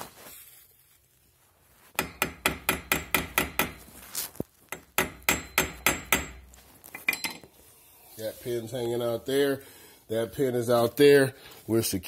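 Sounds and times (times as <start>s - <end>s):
sharp metal taps: 2.0s - 3.9s, 4.7s - 7.5s.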